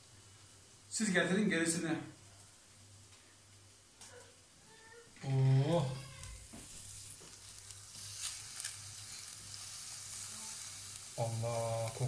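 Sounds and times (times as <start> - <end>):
fat crackling and spitting: 5.2 - 12.0
meat sizzling on grill: 5.2 - 12.0.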